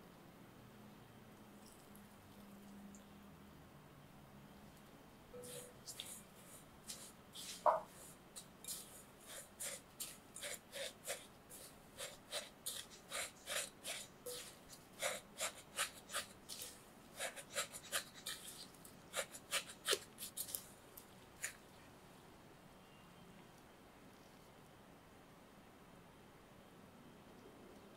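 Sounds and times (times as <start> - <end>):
spatula stirring in glass bowl: 5.4 - 20.6.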